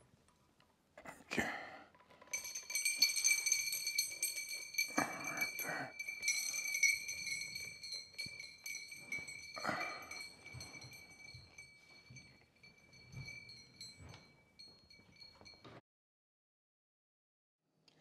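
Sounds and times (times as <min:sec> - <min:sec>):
metal chain rattling: 0:01.9 - 0:15.8
glass chandelier prisms clinking: 0:02.0 - 0:15.8.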